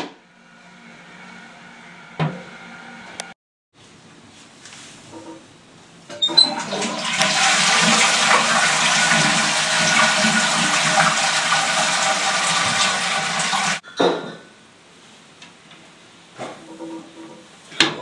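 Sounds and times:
toilet flushing water rush: 6.3s - 13.8s.

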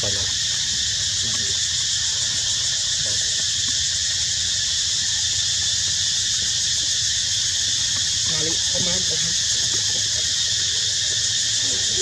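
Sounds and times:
high-pitched droning hiss: 0.0s - 12.0s.

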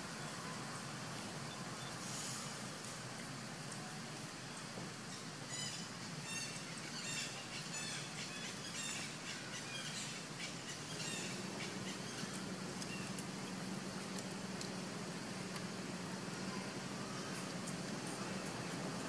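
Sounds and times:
faint low hum: 0.0s - 19.0s
steady background hiss: 0.0s - 19.0s
bird chirping: 5.1s - 13.6s.

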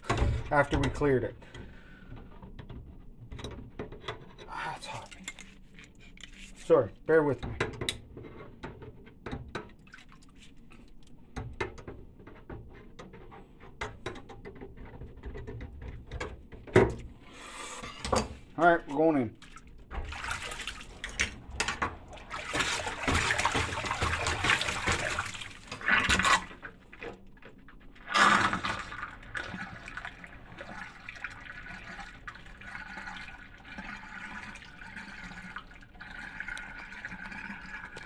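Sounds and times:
water splashing in sink: 9.5s - 11.1s, 18.9s - 38.0s
water rushing down drain: 19.4s - 38.0s.

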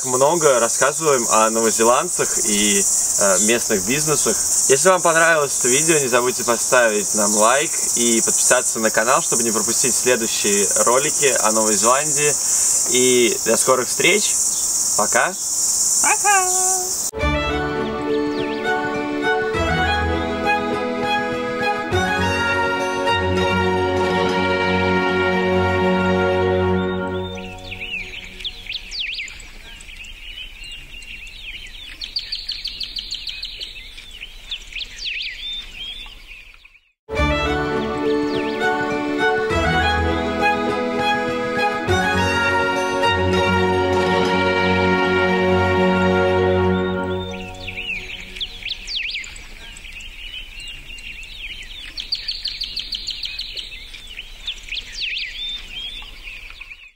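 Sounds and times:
small birds chirping: 0.0s - 20.6s, 26.6s - 37.0s, 37.7s - 39.9s, 46.4s - 56.9s.

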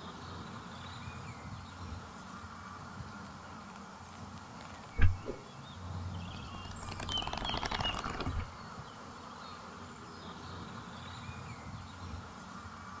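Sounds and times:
crackling clicks: 6.4s - 8.5s.

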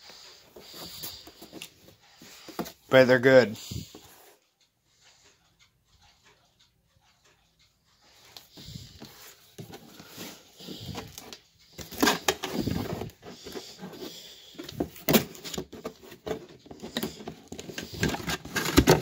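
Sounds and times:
cardboard scraping and rustling: 9.0s - 19.0s.

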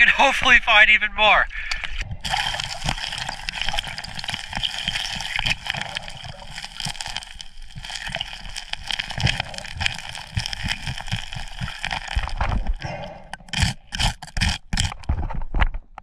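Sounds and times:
underwater water rush: 2.0s - 15.0s
low water thumps: 8.8s - 13.9s.

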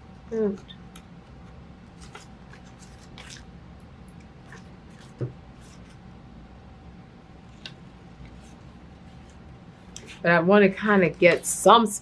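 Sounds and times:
paper rustling: 1.9s - 3.5s.

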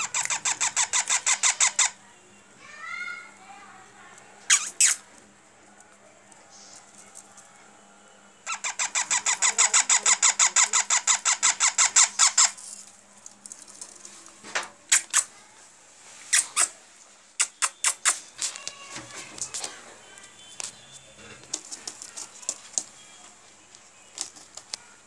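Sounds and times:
parrot chick begging squawks: 0.0s - 2.0s, 8.4s - 12.6s.

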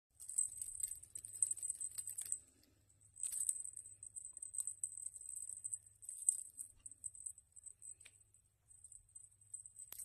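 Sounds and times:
cat toy jingling and rattling: 0.2s - 2.4s, 3.1s - 8.0s.

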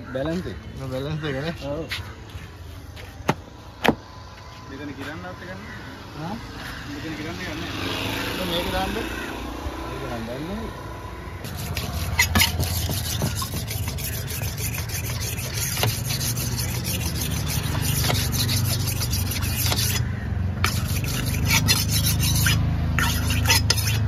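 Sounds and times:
knife scraping on sharpening stone: 11.4s - 24.0s.

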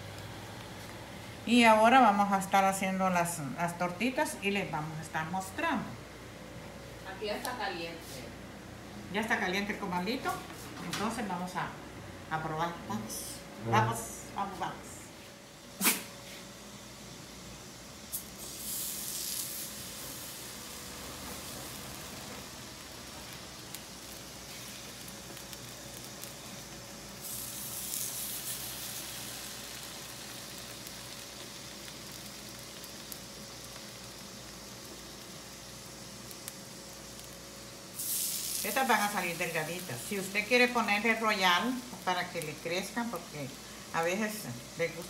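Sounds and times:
batter sizzling on a hot griddle: 15.5s - 45.0s.

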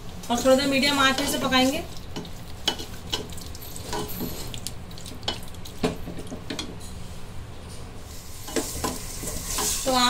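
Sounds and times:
faint sizzle of meat: 8.1s - 10.0s
wooden spatula scraping a pot: 8.2s - 10.0s.

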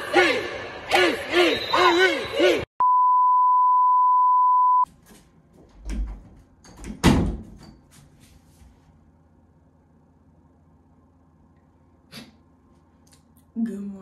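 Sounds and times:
test tone beep: 2.8s - 4.9s
door knocks and thud: 5.8s - 7.6s.

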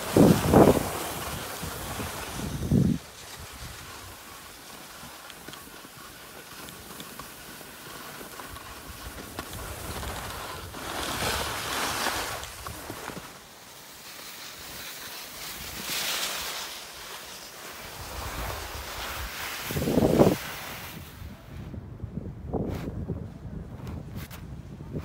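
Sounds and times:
wind rushing over microphone: 0.0s - 4.2s, 18.0s - 25.0s
skis scraping over snow: 0.0s - 21.8s.

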